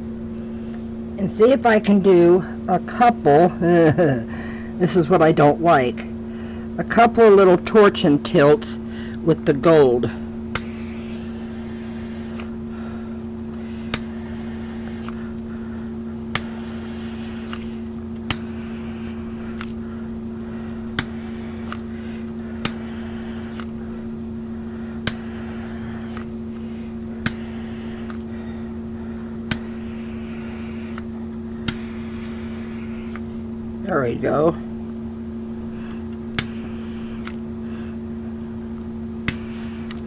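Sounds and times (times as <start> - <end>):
background hum: 0.0 - 40.0
butane torch hissing: 10.0 - 33.4, 35.6 - 40.0
sharp click: 10.5 - 10.8, 30.9 - 31.9, 39.2 - 40.0.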